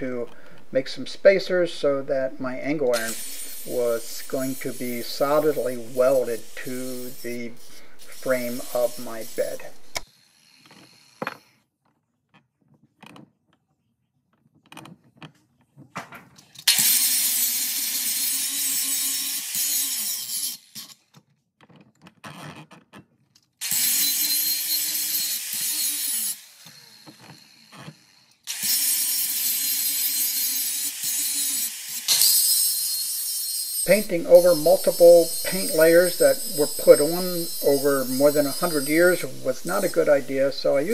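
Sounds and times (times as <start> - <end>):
angle grinder cutting steel: 0.1 - 11.2, 16.7 - 21.0, 23.6 - 40.9
grinder motor winding down: 33.8 - 40.9.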